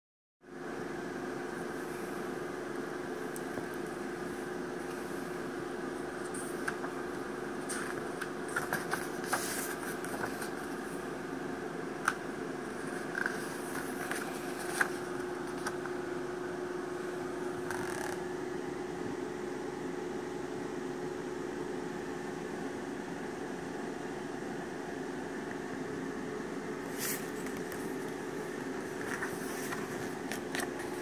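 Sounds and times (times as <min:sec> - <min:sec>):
steady background hum: 0:00.4 - 0:31.0
paper pages rustling: 0:06.1 - 0:11.0, 0:12.0 - 0:16.0, 0:26.9 - 0:28.2, 0:28.8 - 0:31.0.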